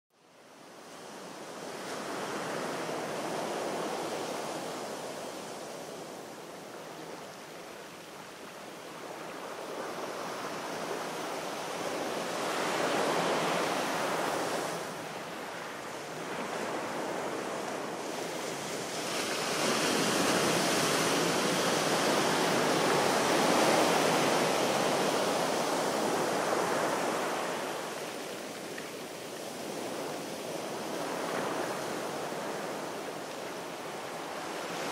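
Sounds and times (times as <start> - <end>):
sea waves washing ashore: 0.5 - 34.9.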